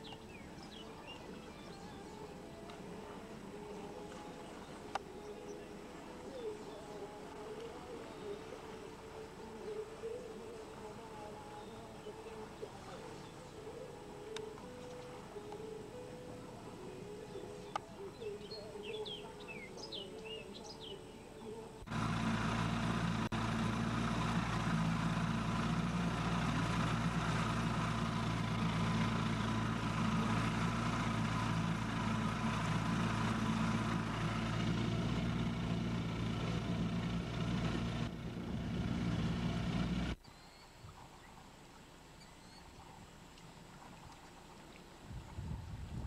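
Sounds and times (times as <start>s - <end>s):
engine running steadily: 0.0s - 20.4s, 21.8s - 40.2s
birds chirping: 0.0s - 35.7s.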